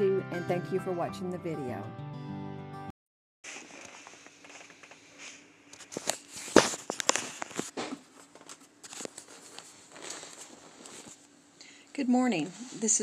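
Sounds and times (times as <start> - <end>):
device handling clicks and rustles: 3.5 - 11.2.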